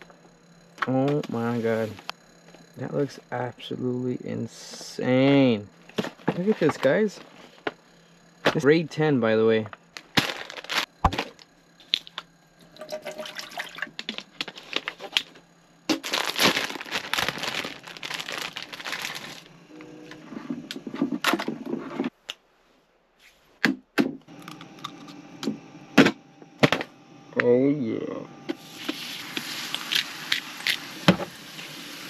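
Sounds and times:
plastic packet crinkling and tearing: 10.0 - 10.9, 15.9 - 19.5
sachet tearing clicks: 15.9 - 19.4.

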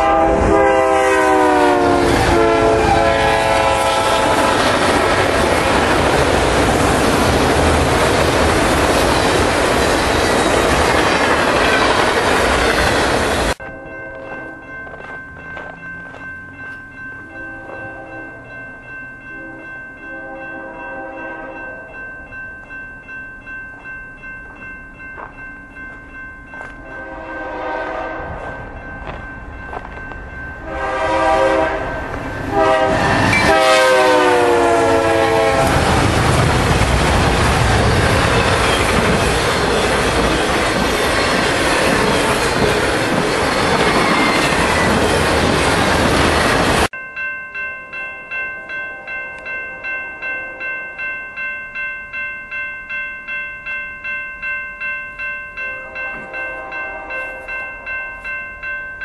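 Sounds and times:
locomotive air horn: 0.0 - 4.8, 20.2 - 21.6, 26.9 - 28.5, 30.6 - 36.0, 55.8 - 57.5
train rumbling and clattering: 0.2 - 18.5, 23.7 - 47.0.

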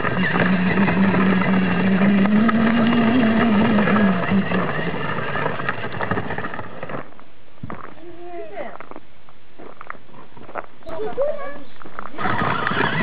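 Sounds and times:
toy quad motor drone: 0.0 - 7.0, 12.1 - 13.0
plastic wheels crunching on gravel: 0.0 - 9.0, 9.6 - 13.0.

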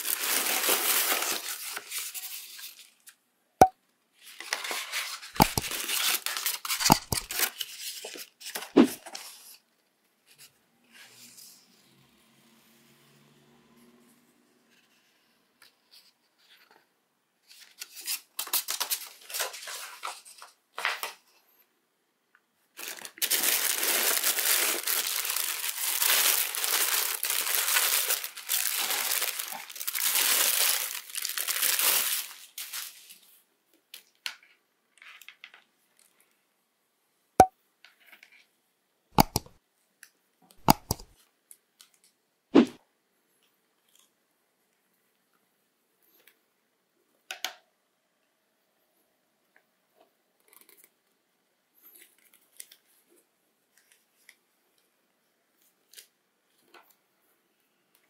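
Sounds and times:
tissue paper crinkling: 0.0 - 3.0, 4.3 - 8.6, 22.8 - 33.3.

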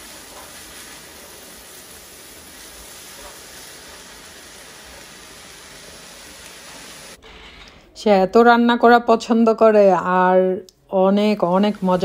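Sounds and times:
rice frying in a pan: 0.0 - 7.2, 11.3 - 12.0.

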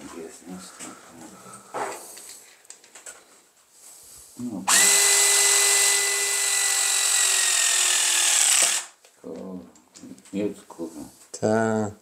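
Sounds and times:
hydraulic pump motor whining: 4.7 - 8.9.

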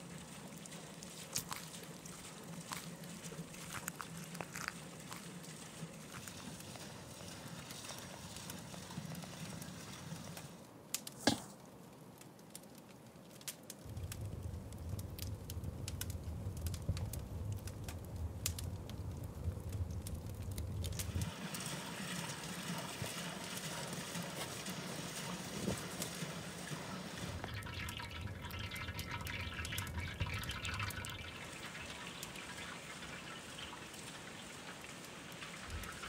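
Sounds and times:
campfire crackling: 0.0 - 36.0
low rumble of flames: 0.0 - 36.0
steady hiss: 13.5 - 27.5.

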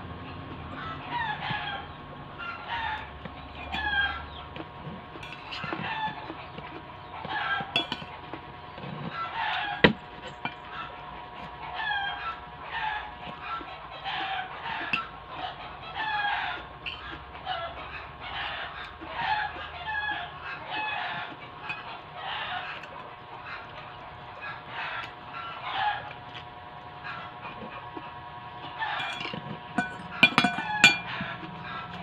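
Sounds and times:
birds calling: 0.0 - 32.0
cutlery clinking on a plate: 7.8 - 8.1, 29.0 - 31.2.

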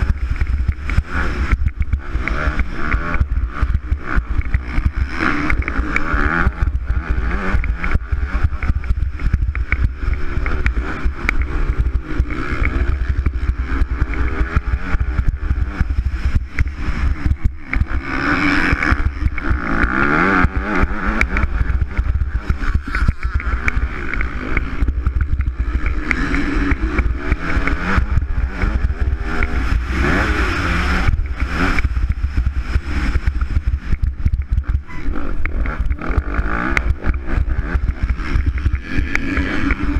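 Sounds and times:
motocross bike engine revving: 0.0 - 39.9.

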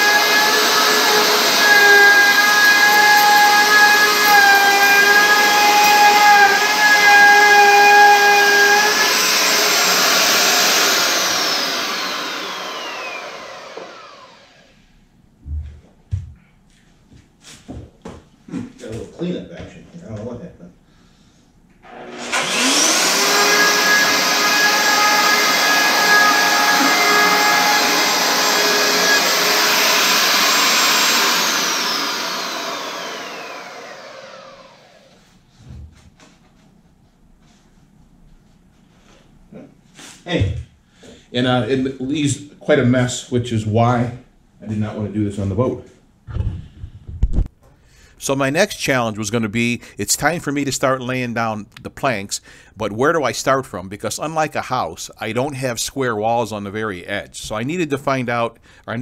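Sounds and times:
electric router cutting wood: 0.0 - 14.7, 21.8 - 35.2
router motor spinning down: 0.0 - 14.7, 21.8 - 35.2.

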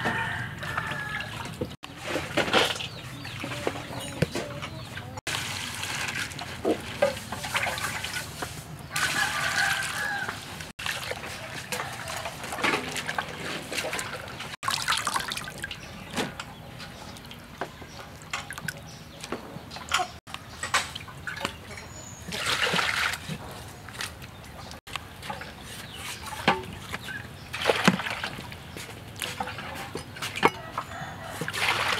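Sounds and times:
water dripping: 8.9 - 18.9
water pouring into bowl: 14.6 - 15.8.

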